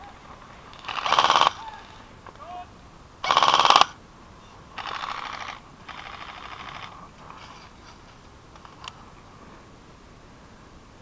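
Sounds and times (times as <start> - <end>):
airsoft rifles firing rapidly: 0.8 - 1.9, 3.2 - 4.0, 4.8 - 6.9.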